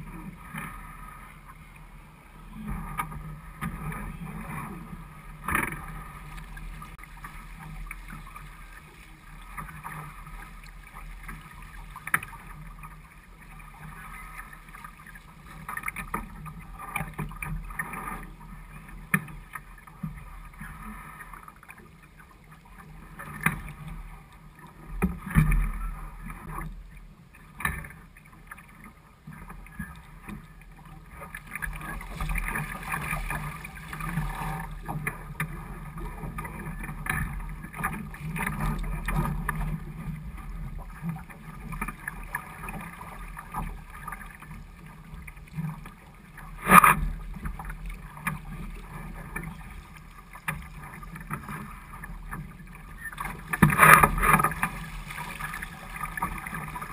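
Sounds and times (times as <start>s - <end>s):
water slapping against hull: 27.5s - 56.9s.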